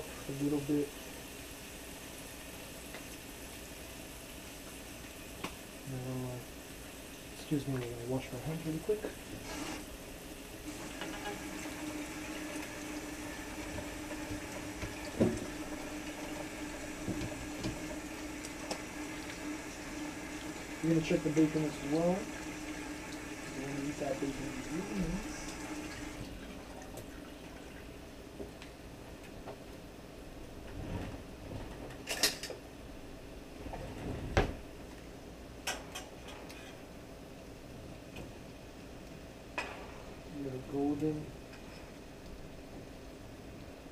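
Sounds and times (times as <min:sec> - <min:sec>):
tap water running over hands: 0:10.5 - 0:27.9.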